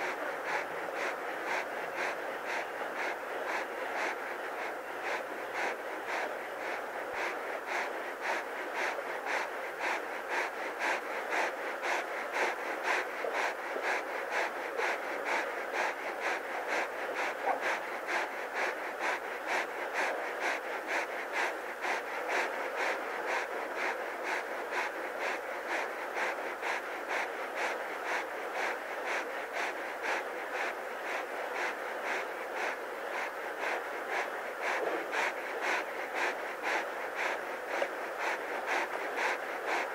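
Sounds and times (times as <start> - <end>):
lion panting: 0.0 - 39.9.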